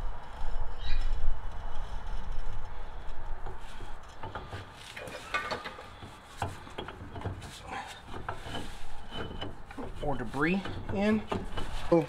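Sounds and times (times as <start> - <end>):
metal parts knocking and scraping: 3.1 - 12.0.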